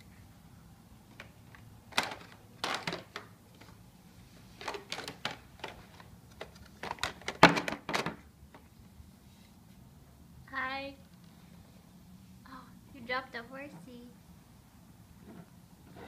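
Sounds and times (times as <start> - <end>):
plastic toys clicking and knocking: 1.1 - 3.7, 4.6 - 8.6.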